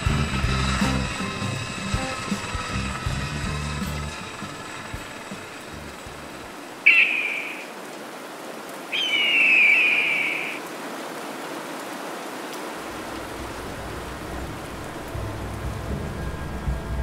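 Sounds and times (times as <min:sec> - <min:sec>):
steady rain-like hiss: 0:00.0 - 0:17.0
elephant trumpeting: 0:06.8 - 0:07.7, 0:09.0 - 0:10.6.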